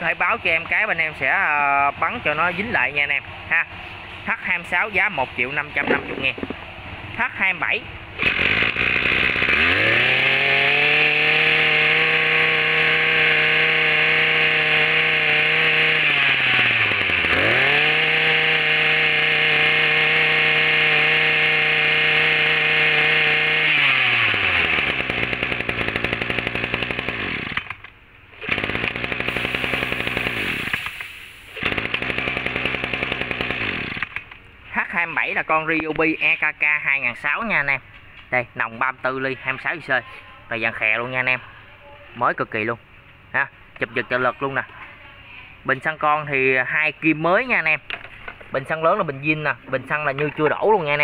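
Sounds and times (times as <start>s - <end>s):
brush cutter engine revving: 0.0s - 35.4s.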